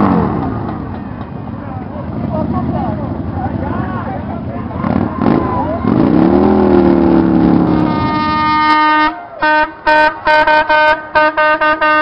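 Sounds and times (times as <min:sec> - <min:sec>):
motorcycle engine revving: 0:00.0 - 0:08.9
vehicle horn toots: 0:07.7 - 0:12.0.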